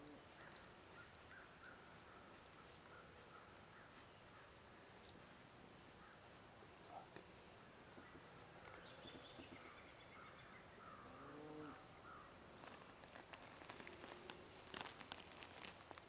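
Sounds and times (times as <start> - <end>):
light crackles and ticks: 0.3 - 3.3, 12.6 - 16.0
faint animal calls: 5.9 - 12.8.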